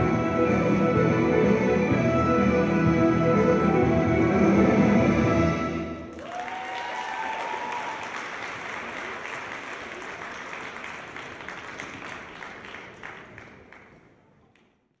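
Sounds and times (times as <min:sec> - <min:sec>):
audience applauding: 0:06.1 - 0:14.7.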